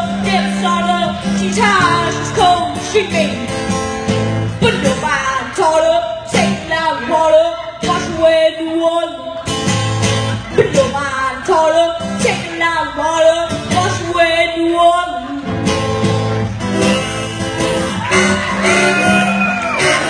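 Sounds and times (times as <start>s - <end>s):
acoustic guitar: 0.0s - 20.0s
boy singing: 10.6s - 15.4s
harmonica: 16.7s - 20.0s.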